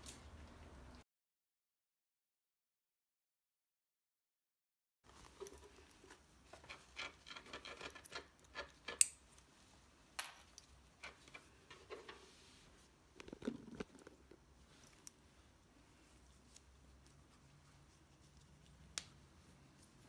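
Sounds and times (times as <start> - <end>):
scratches and rustles: 11.0 - 20.0.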